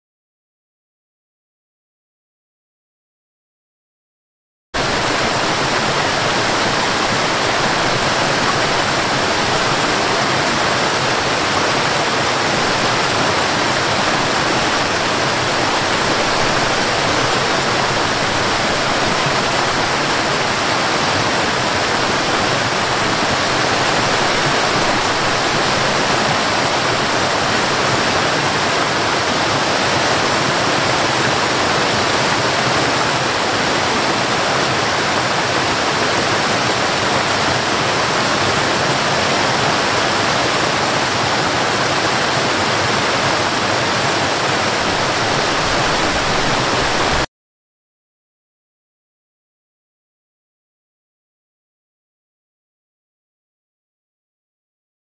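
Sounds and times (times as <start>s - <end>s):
waterfall splashing over rock: 4.8s - 47.3s.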